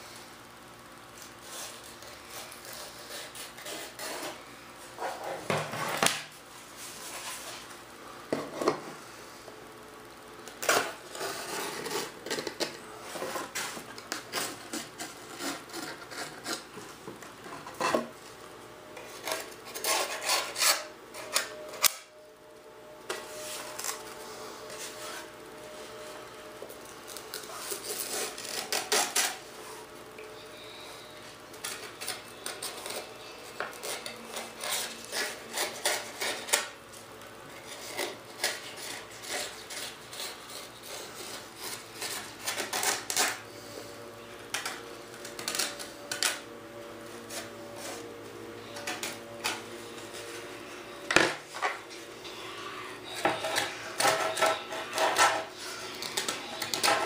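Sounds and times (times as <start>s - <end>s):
razor blade scraping fiberglass: 1.4s - 4.4s, 19.2s - 21.9s, 33.8s - 36.7s, 37.7s - 43.4s.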